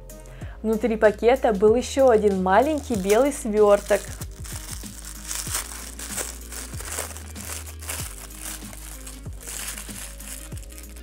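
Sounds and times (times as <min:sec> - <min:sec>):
soft background music: 0:00.0 - 0:11.0
wrapping crinkling and rustling: 0:02.0 - 0:11.0.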